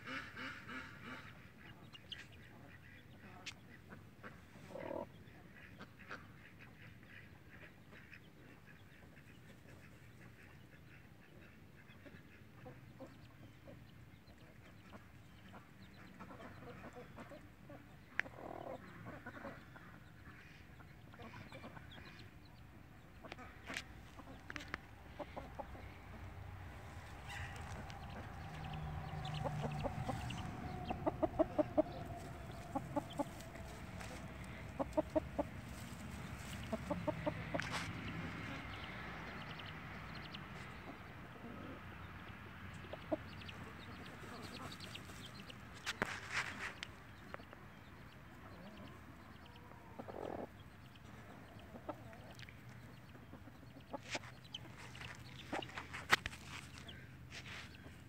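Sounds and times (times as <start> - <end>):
chicks calling: 0.0 - 58.0
hen clucking softly: 0.0 - 58.0
scratchy rustle of dirt: 37.6 - 38.0, 44.2 - 47.0, 54.0 - 58.0.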